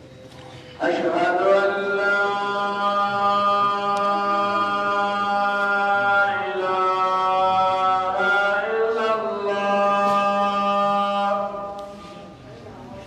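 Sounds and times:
man chanting held notes: 0.6s - 12.3s.

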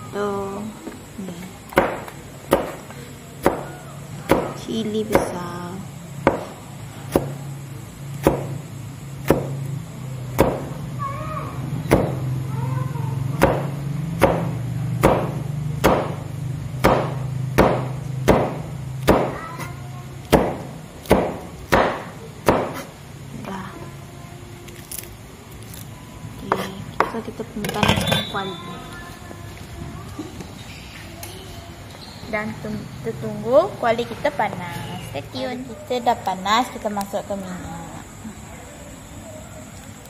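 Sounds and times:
knife chopping on plastic board: 1.7s - 2.8s, 6.3s - 7.4s, 8.2s - 8.6s, 9.2s - 9.6s, 10.4s - 10.7s, 13.4s - 16.2s, 16.8s - 19.7s, 20.3s - 22.9s.

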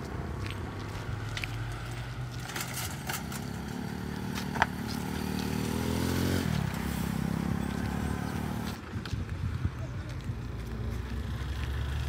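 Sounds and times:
vehicle engine passing by: 0.8s - 8.8s, 10.6s - 12.0s.

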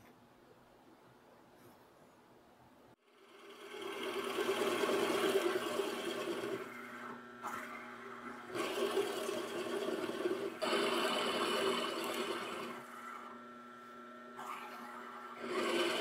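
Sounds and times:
drill press boring into wood: 3.2s - 13.5s, 14.3s - 16.0s.

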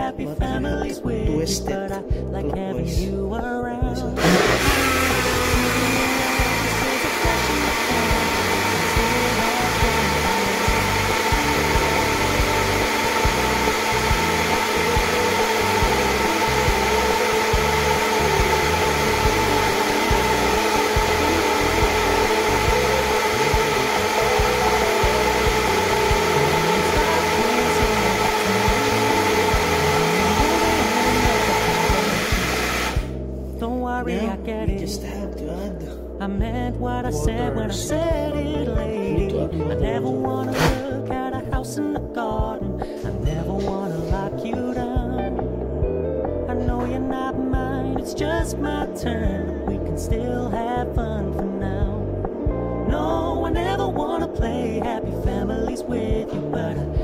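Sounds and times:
blender motor whine: 4.2s - 33.2s, 40.5s - 41.0s.

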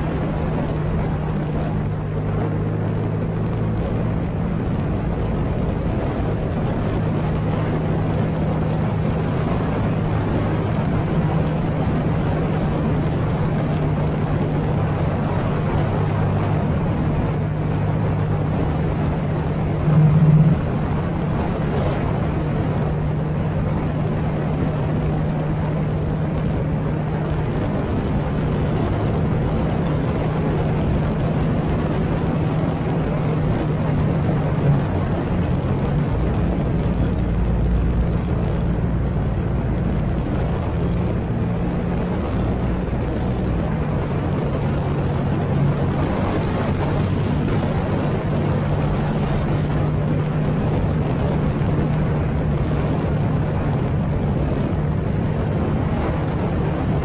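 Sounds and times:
wind and road noise: 0.0s - 57.0s
motorcycle engine running: 15.8s - 23.3s.

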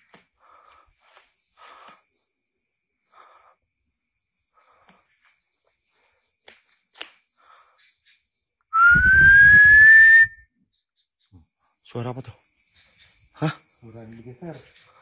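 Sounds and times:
insects chirping: 0.0s - 15.0s
loud rising whistle: 8.8s - 10.5s.

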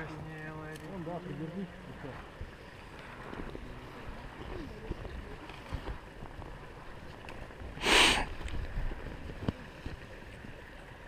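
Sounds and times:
short loud hiss: 7.8s - 8.3s.

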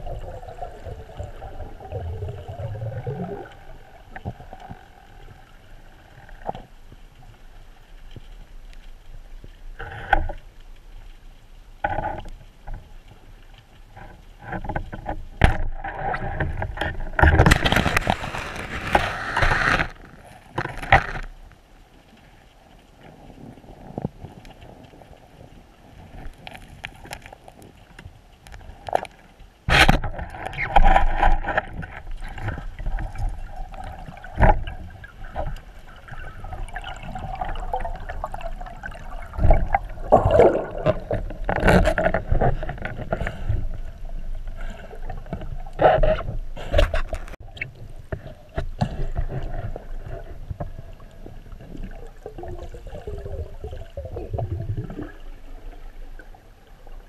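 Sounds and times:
underwater water noise: 0.0s - 57.0s
knocks and thuds underwater: 14.0s - 21.3s, 29.7s - 56.3s.

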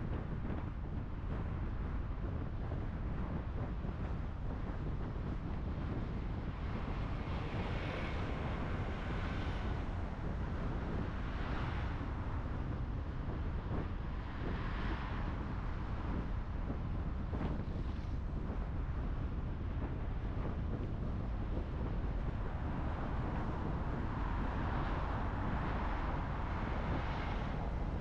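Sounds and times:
car road rumble: 0.0s - 28.0s
wind buffeting microphone: 0.0s - 28.0s
passing traffic: 6.1s - 28.0s.

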